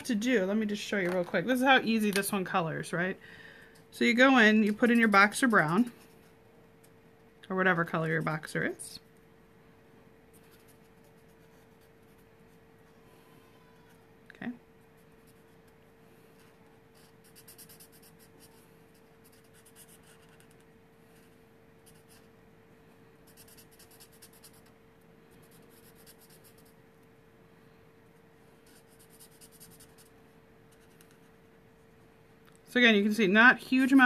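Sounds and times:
faint hum: 0.0s - 34.0s
marker nib rubbing on paper: 16.9s - 20.6s, 23.3s - 24.8s, 25.4s - 26.8s, 28.6s - 31.4s.

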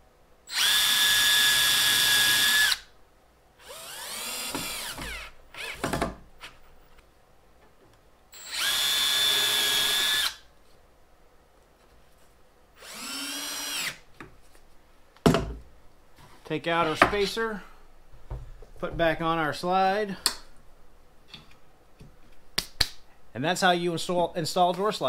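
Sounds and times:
second cordless drill driving screw: 0.5s - 2.8s, 3.6s - 5.8s, 8.4s - 10.4s, 12.8s - 14.0s
cordless drill boring into wood: 0.5s - 2.9s, 3.6s - 5.8s, 8.4s - 10.4s, 12.8s - 14.0s.

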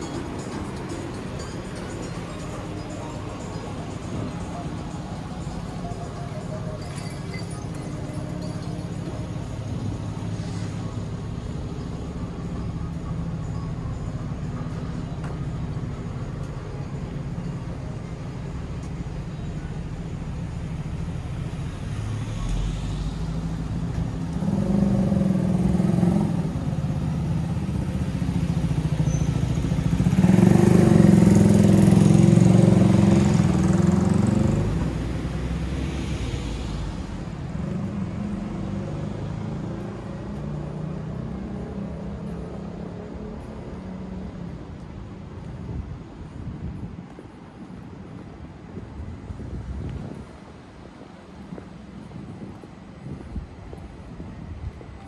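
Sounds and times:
traffic rumble: 0.0s - 55.0s
vehicle passing by: 21.7s - 44.7s.

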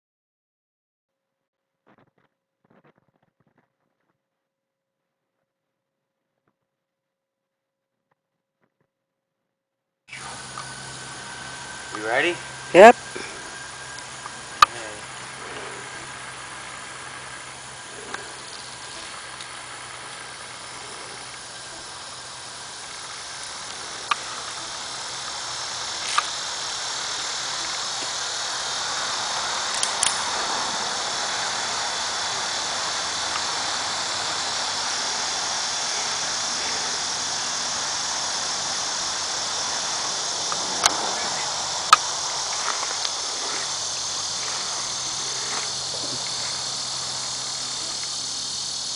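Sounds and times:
high-pitched insect chorus: 10.1s - 48.9s.

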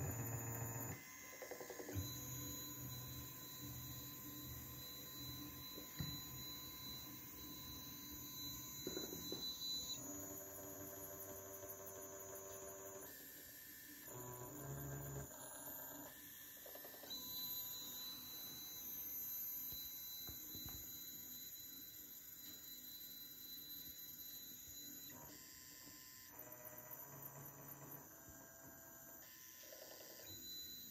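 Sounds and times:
stepper motors humming and whining: 1.7s - 13.0s.

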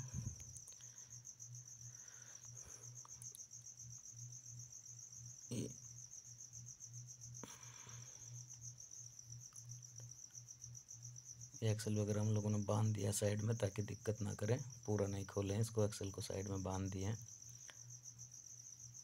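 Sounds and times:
low pulsing hum: 0.0s - 2.8s.

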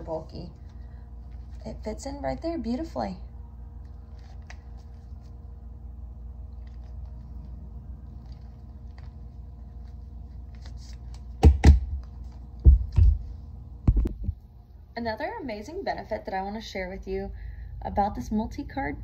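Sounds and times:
steady low hum: 0.0s - 19.0s
heavy knocks and thumps: 11.4s - 13.2s, 13.8s - 14.4s.

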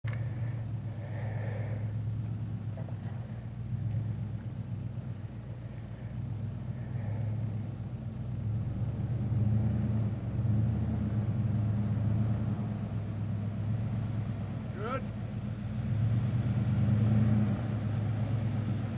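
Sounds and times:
truck engine running under load: 0.0s - 18.9s.

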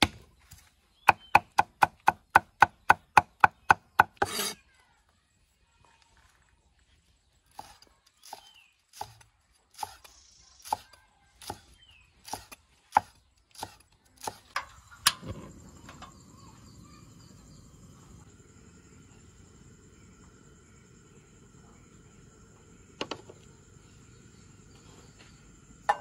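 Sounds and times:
cleaver chopping on wooden board: 1.1s - 4.6s.

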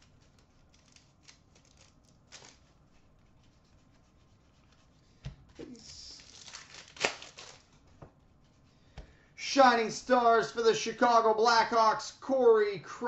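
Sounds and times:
foil wrapper crinkling and tearing: 0.0s - 2.8s, 5.7s - 7.8s
card pack rustling: 0.7s - 2.8s, 5.6s - 7.8s.

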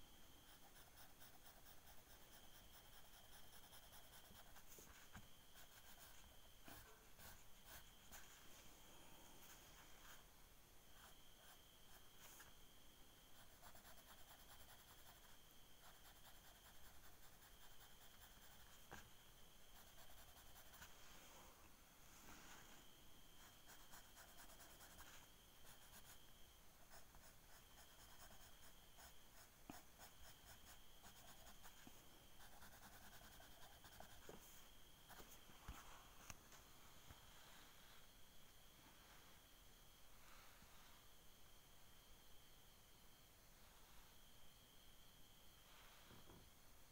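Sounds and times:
faint high whine: 0.0s - 46.9s
pencil scratching on paper: 0.4s - 8.3s, 13.3s - 19.1s, 19.7s - 21.0s, 23.4s - 26.2s, 26.8s - 34.4s.

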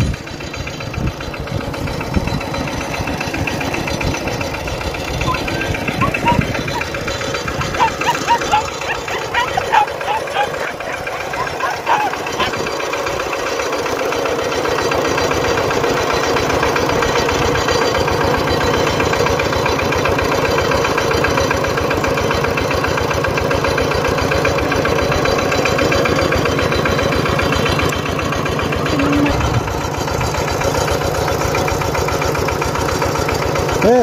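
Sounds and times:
small engine chugging: 0.0s - 34.0s.

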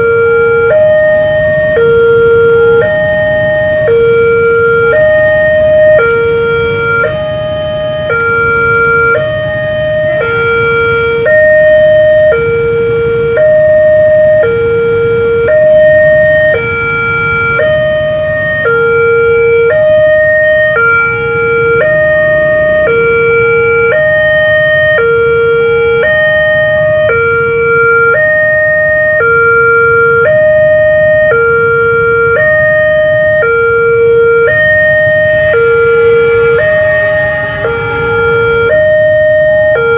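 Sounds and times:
electronic two-tone warning bell: 0.0s - 39.9s.

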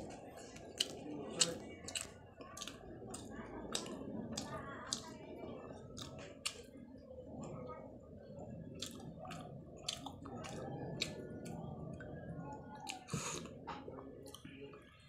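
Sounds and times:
close chewing of crispy food: 0.0s - 5.2s, 5.9s - 6.7s, 8.7s - 12.1s
wet mouth sounds: 0.5s - 5.1s.

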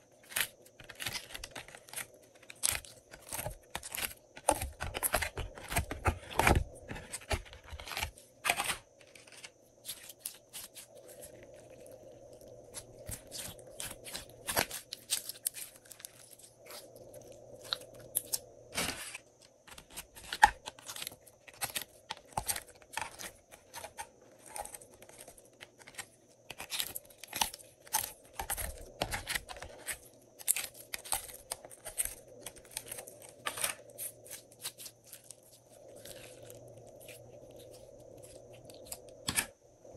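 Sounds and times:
slime crackling and popping: 12.7s - 16.8s.

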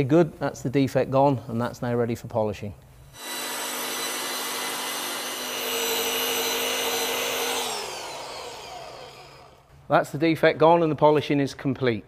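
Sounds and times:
electric car polisher motor: 3.2s - 9.6s.

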